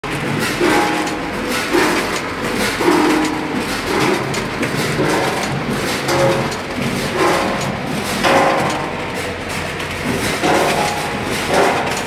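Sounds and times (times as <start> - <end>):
conveyor clatter: 0.0 - 12.0
conveyor machine noise: 0.0 - 12.0.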